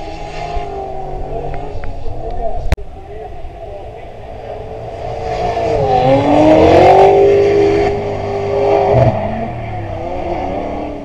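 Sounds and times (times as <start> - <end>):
car engine revving hard: 4.4 - 11.0.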